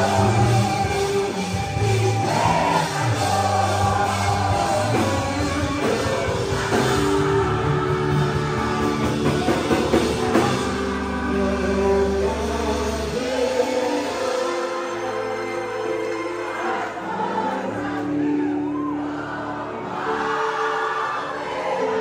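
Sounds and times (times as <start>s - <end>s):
person singing into a microphone: 0.0s - 16.4s
congregation singing: 0.0s - 22.0s
rock band playing: 0.0s - 22.0s.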